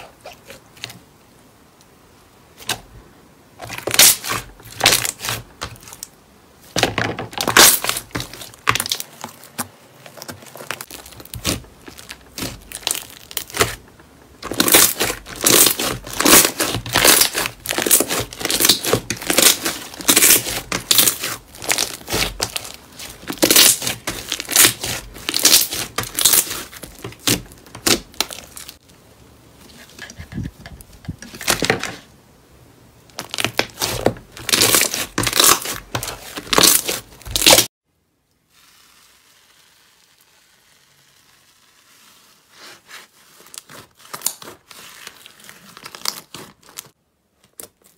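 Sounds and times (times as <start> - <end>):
hands squelching slime: 7.3 - 28.8, 33.2 - 37.7.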